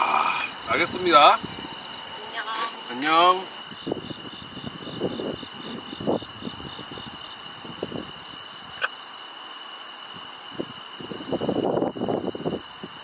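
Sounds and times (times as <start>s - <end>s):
crickets chirping: 0.0s - 13.0s
sharp click: 8.8s - 9.0s.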